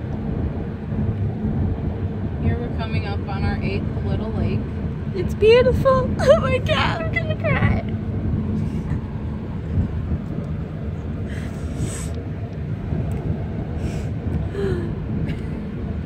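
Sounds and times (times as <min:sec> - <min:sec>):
car road and engine rumble: 0:00.0 - 0:16.0.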